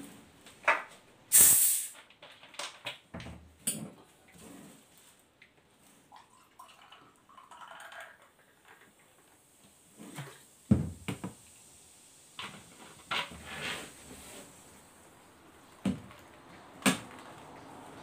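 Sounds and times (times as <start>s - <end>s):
soda fizzing as it pours: 1.3s - 2.0s, 6.0s - 10.7s.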